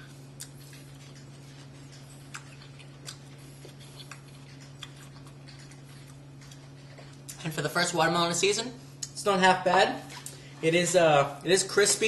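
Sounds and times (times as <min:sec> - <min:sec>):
man chewing watermelon: 0:00.0 - 0:09.2
steady low hum: 0:00.0 - 0:12.0.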